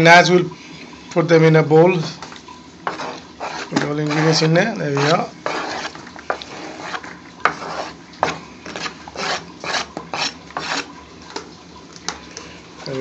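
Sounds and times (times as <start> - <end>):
knife scraping plastic cutting board: 2.9 - 10.9.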